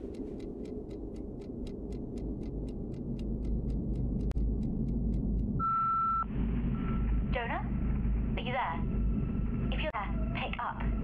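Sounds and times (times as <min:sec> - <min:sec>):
fast even ticking: 0:00.0 - 0:05.7
steady low rumble: 0:00.0 - 0:11.0
steady high beep: 0:05.6 - 0:07.0.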